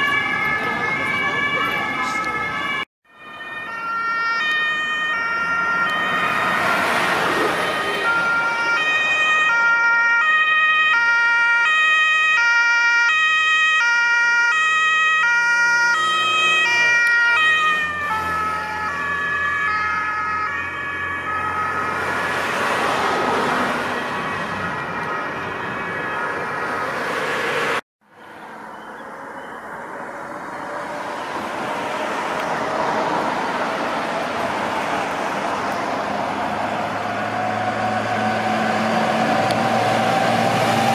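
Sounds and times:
two-tone emergency siren: 0:00.0 - 0:27.8, 0:28.7 - 0:40.9
vehicle road noise: 0:00.0 - 0:40.9.

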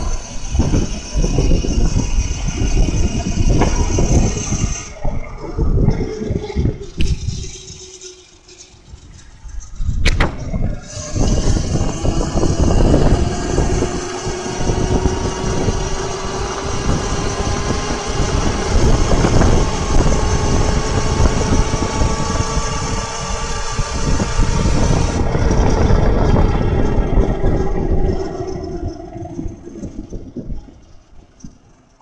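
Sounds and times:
electric motor whining: 0:00.0 - 0:31.7
tyre and wind noise: 0:00.0 - 0:32.0.

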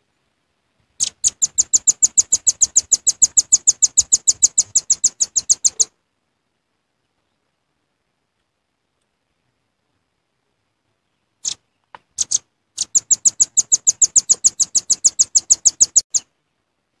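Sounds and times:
bird calling sharp high chit notes: 0:01.0 - 0:05.9, 0:12.2 - 0:16.3.

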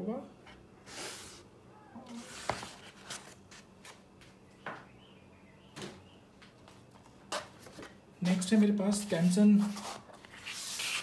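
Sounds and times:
paper rustling: 0:02.1 - 0:04.0, 0:09.5 - 0:11.0.

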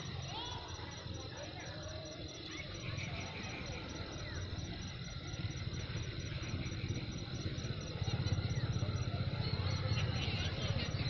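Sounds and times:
insects chirping: 0:00.0 - 0:11.0
low pulsing engine rumble: 0:00.0 - 0:11.0.

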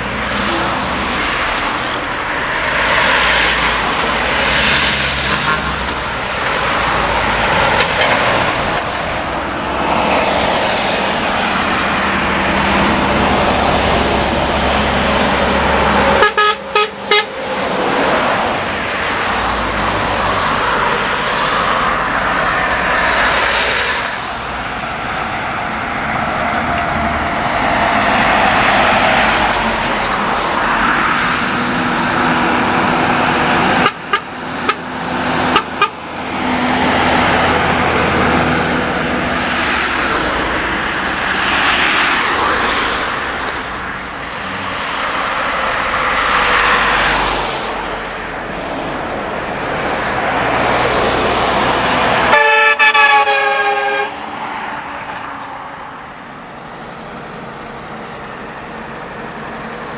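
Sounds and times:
lorries and cars passing: 0:00.0 - 0:59.9
vehicle horn: 0:05.1 - 0:06.0, 0:16.1 - 0:17.4, 0:33.8 - 0:34.8, 0:35.5 - 0:36.0, 0:52.3 - 0:54.3.

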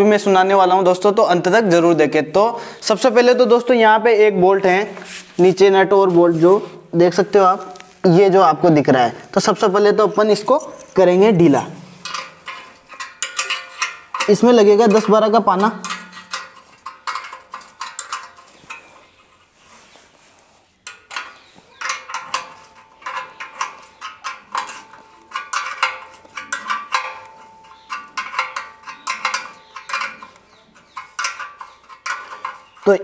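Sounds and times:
spanners clinking on metal: 0:09.9 - 0:19.4, 0:20.8 - 0:33.0.

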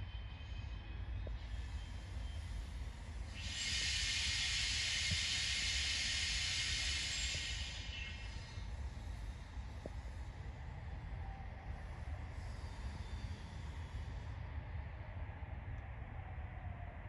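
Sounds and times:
electric train rumbling slowly: 0:00.0 - 0:17.0
loud hiss: 0:03.3 - 0:09.8.

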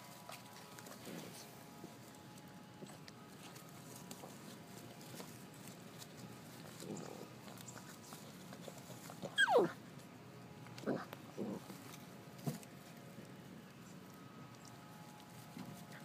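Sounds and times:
puppy yelping: 0:08.8 - 0:09.8
puppy yipping: 0:09.2 - 0:09.8.

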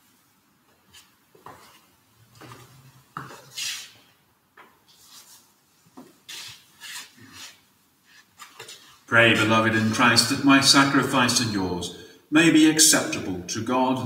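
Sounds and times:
cloth rustling: 0:00.1 - 0:09.1.

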